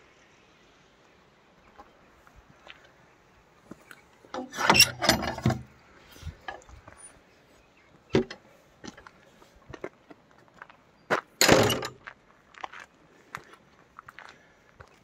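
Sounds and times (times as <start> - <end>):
metal gate latch clanking: 4.4 - 5.7, 11.4 - 12.0
footsteps on gravel: 8.9 - 15.0.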